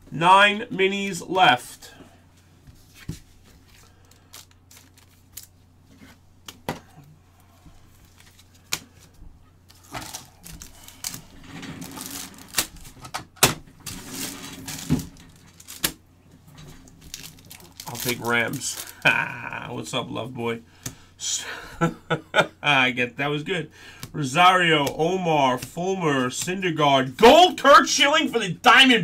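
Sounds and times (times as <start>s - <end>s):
foil wrapper crinkling and rustling: 3.1s - 5.6s, 7.9s - 13.1s, 13.8s - 19.5s.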